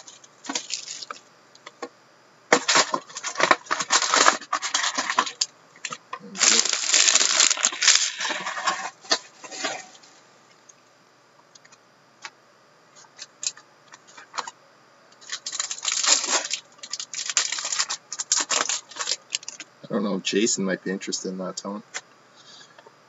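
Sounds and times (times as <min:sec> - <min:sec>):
card wrappers crinkling and tearing: 0:00.0 - 0:01.2, 0:02.5 - 0:10.0, 0:15.2 - 0:19.7.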